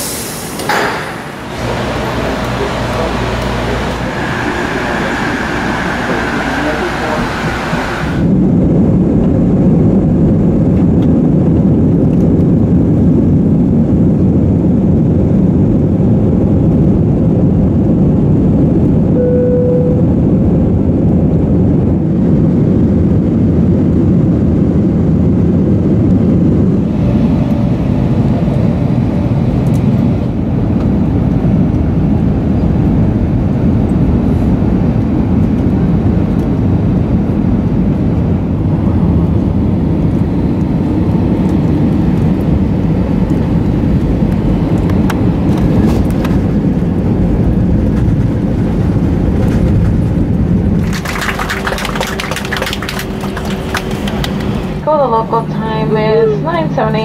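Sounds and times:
jet engine roar in cabin: 0.0s - 57.0s
short beep: 19.2s - 20.2s.

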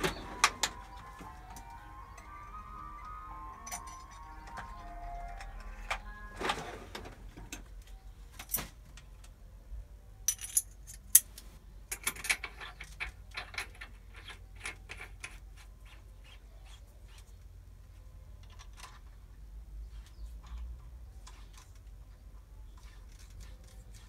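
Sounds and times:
metal tools clinking: 3.6s - 4.6s, 10.3s - 11.3s.

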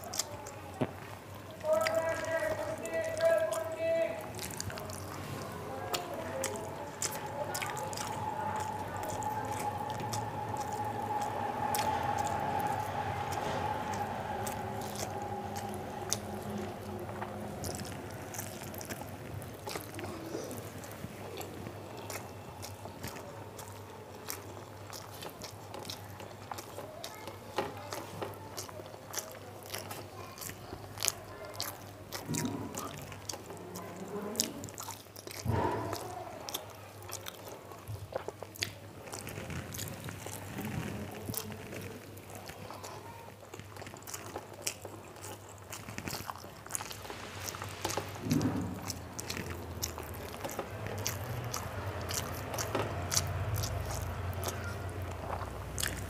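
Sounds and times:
person chewing food: 0.0s - 56.0s
wet mouth clicks and smacks: 43.6s - 56.0s.

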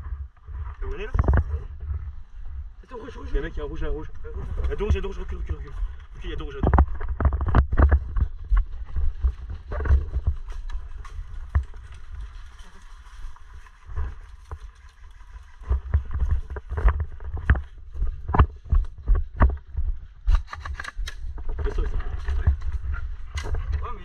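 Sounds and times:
gear rustling and knocking: 4.6s - 24.0s
footsteps through dry grass: 6.8s - 20.6s.

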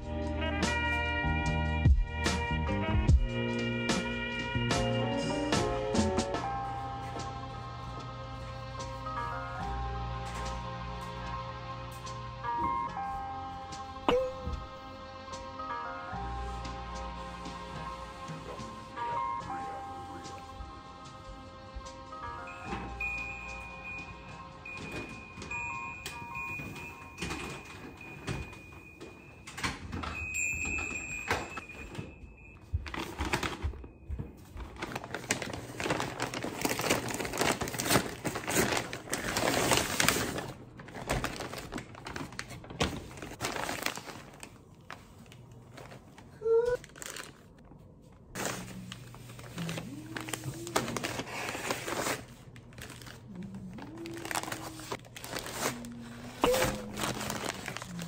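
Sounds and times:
paper bag rustling: 32.8s - 58.0s.

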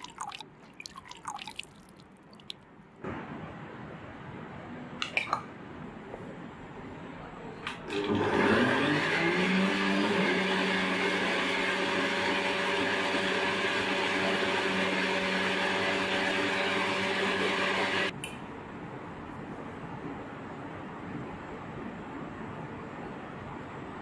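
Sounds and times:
blender motor running: 7.9s - 18.1s.

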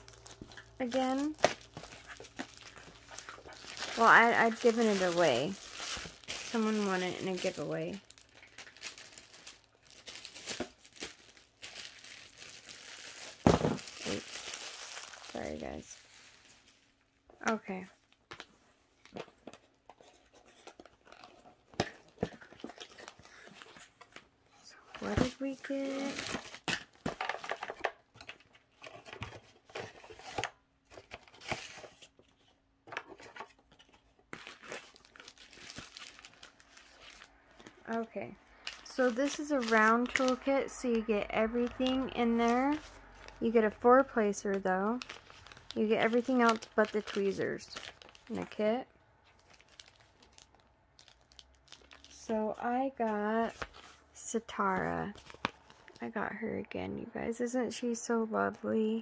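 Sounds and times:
plastic bag crinkling: 0.0s - 16.9s, 25.0s - 32.2s, 33.0s - 40.6s, 41.6s - 52.2s.

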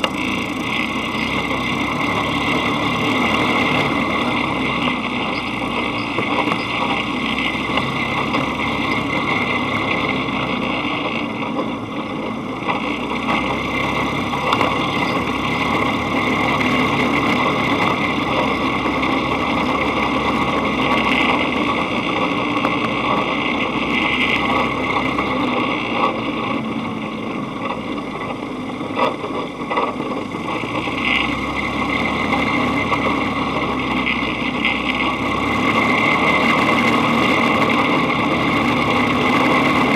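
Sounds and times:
dune buggy engine running: 0.0s - 39.9s.

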